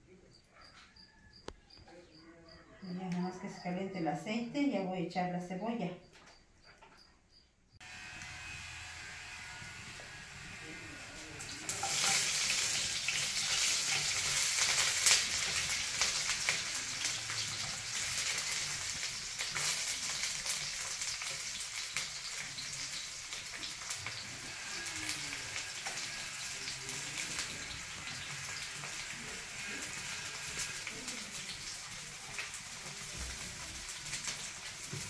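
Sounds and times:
onion sizzling in hot oil: 7.8 - 35.0
oil crackles: 11.4 - 35.0.

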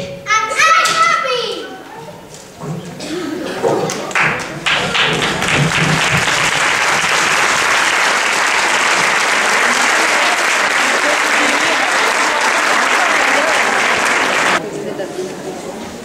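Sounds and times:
audience applauding: 3.9 - 14.6.

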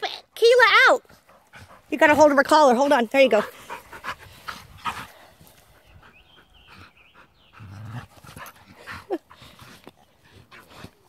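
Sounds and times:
dogs panting: 1.0 - 11.0.

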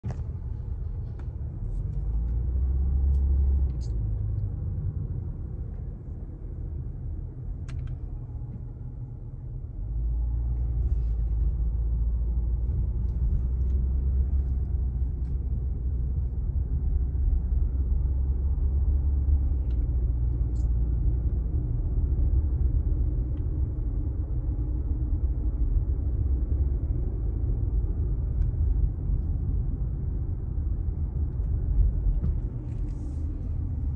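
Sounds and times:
car road and engine rumble: 0.0 - 33.9.

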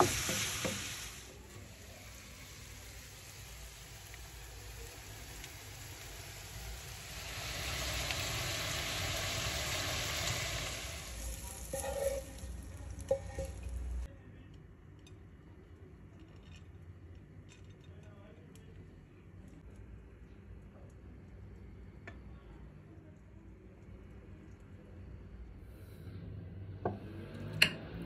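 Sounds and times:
mushrooms sizzling in butter: 0.0 - 14.1.

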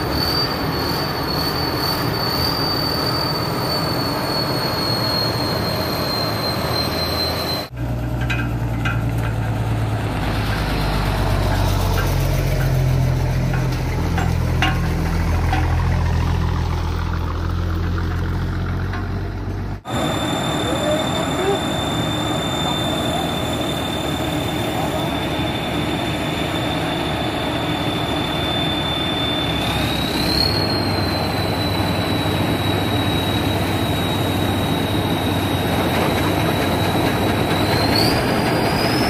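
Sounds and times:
harvester high steady whine: 18.9 - 36.1.

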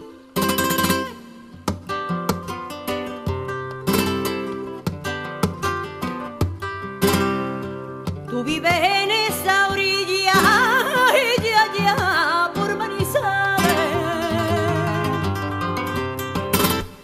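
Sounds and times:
strummed acoustic guitar: 0.0 - 17.0
person singing ornamented vocal line: 8.4 - 15.1.

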